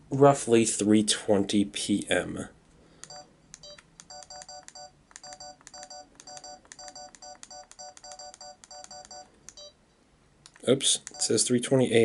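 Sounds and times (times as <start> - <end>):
short electronic camera beeps: 3.0 - 9.8.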